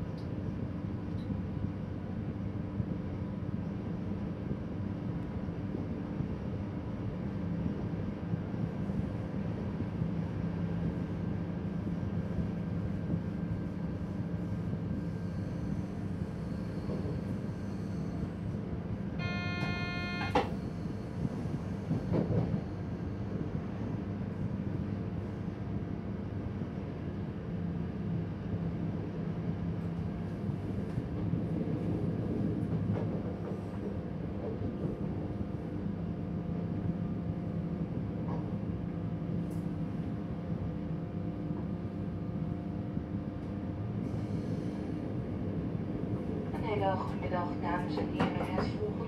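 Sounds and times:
train rolling noise: 0:04.3 - 0:49.0
train motor hum: 0:11.9 - 0:23.7.

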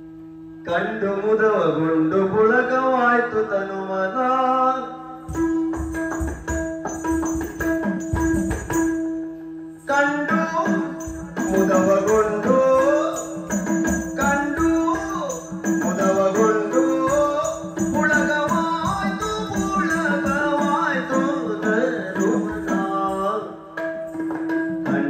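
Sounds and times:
drum strokes: 0:05.2 - 0:09.4, 0:10.3 - 0:25.0
person singing: 0:09.9 - 0:24.0, 0:24.8 - 0:25.0.

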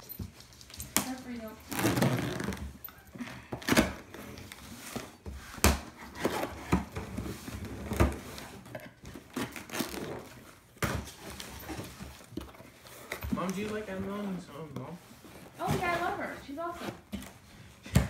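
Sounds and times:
paper and cardboard rustling: 0:03.5 - 0:17.8.

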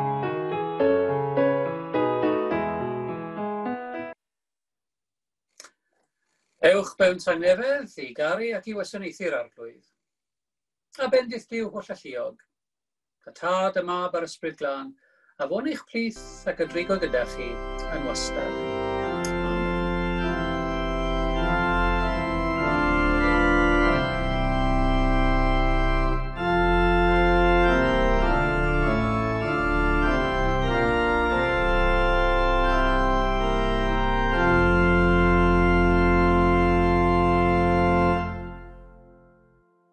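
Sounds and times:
organ playing slow chords: 0:00.0 - 0:04.1, 0:16.2 - 0:39.7.

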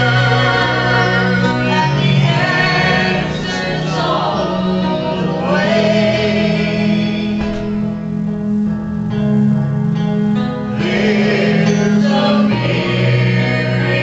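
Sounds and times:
girls singing into microphones: 0:00.0 - 0:07.8.

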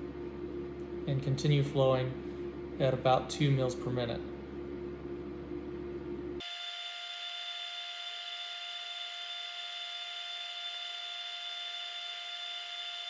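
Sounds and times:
high machine whine: 0:06.2 - 0:13.0.

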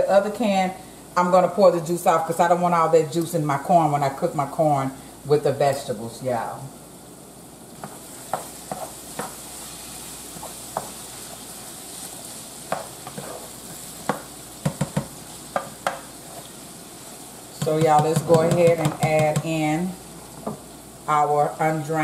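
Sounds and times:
meat sizzling in a skillet: 0:06.9 - 0:22.0
spatula scraping a pan: 0:07.8 - 0:16.6.

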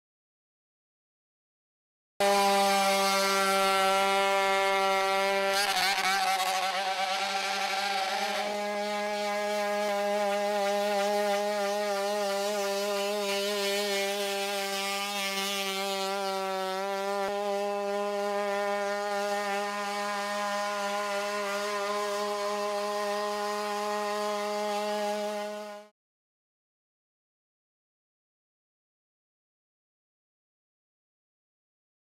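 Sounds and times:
high-pitched engine drone: 0:02.2 - 0:25.9.

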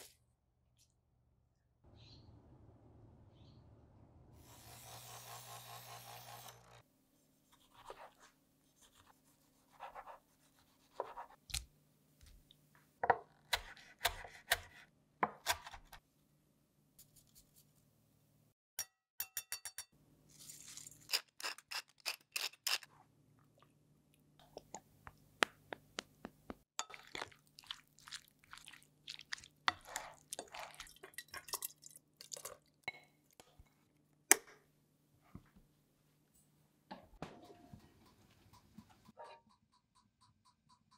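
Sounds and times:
utensils tapping ceramic bowl: 0:19.2 - 0:19.9.

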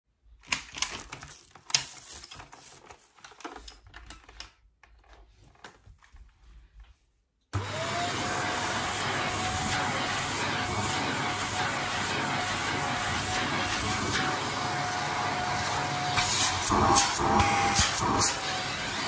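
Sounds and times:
vacuum cleaner motor whine: 0:07.6 - 0:19.0.

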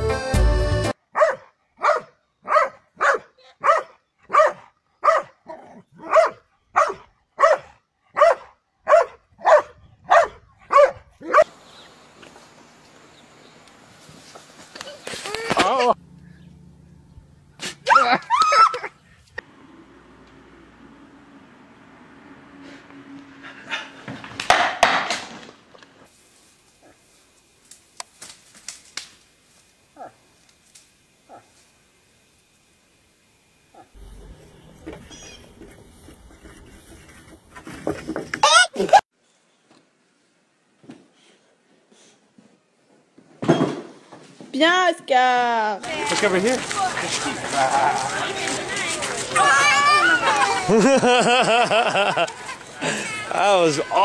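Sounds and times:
music: 0:00.0 - 0:01.0
dog barking: 0:01.1 - 0:11.5, 0:30.0 - 0:30.2
twigs snapping: 0:27.6 - 0:29.3.

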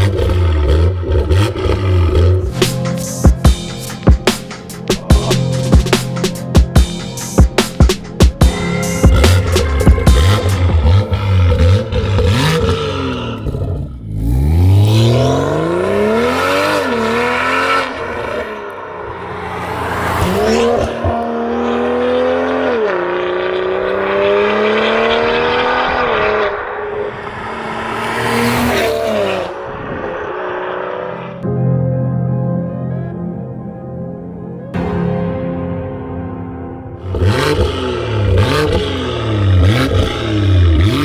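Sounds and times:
car engine accelerating through gears: 0:00.0 - 0:02.6, 0:09.0 - 0:31.5, 0:37.0 - 0:41.0.

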